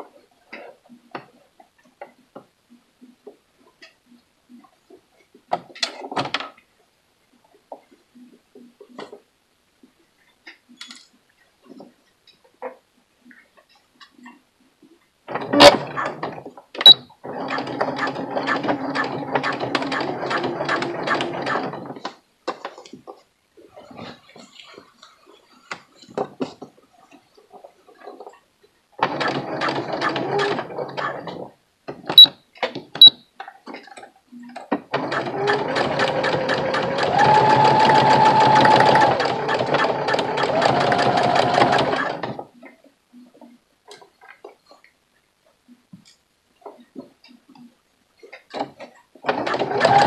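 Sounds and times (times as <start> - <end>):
sewing machine stitching: 15.3 - 22.1, 29.0 - 31.5, 34.8 - 42.5, 48.6 - 50.0.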